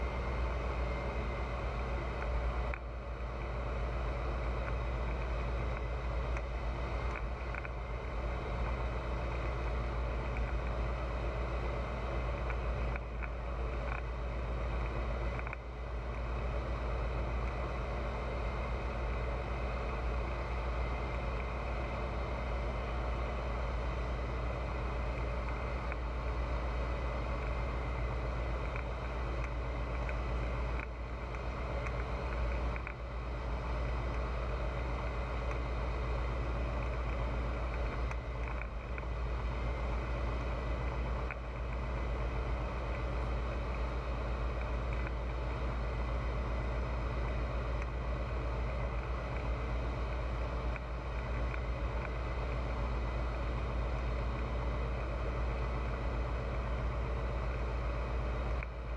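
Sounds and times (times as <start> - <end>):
light aircraft engine drone: 0.0 - 58.9.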